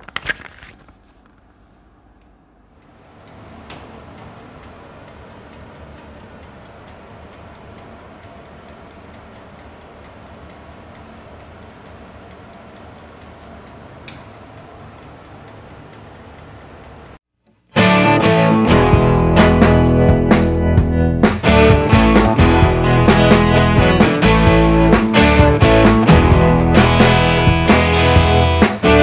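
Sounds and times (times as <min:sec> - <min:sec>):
steady low hum: 0:01.6 - 0:17.2
oven timer ticking: 0:02.7 - 0:17.2.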